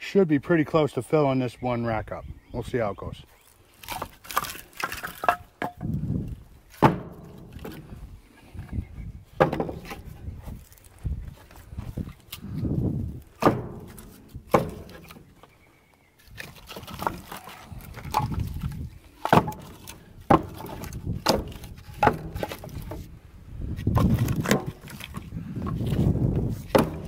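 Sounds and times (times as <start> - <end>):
firewood knocking into a bin: 3.9 - 6.0, 6.7 - 7.9, 9.4 - 10.2, 13.4 - 15.2, 16.4 - 23.1, 23.9 - 25.3, 26.7 - 27.0.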